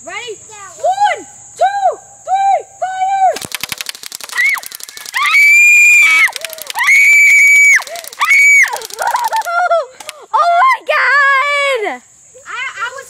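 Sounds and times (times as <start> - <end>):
airsoft gun firing rapid burst: 3.4 - 9.5
child screaming: 4.3 - 9.4.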